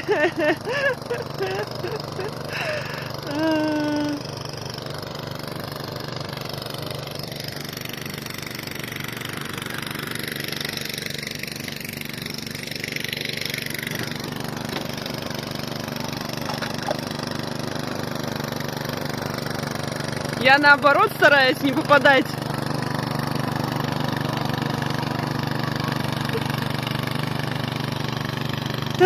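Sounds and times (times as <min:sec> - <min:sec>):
snowblower engine running: 0:00.0 - 0:29.0.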